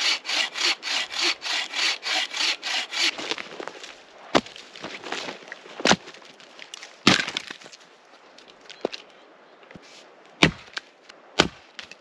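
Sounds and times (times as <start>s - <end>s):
logs knocking together: 3.0s - 7.8s.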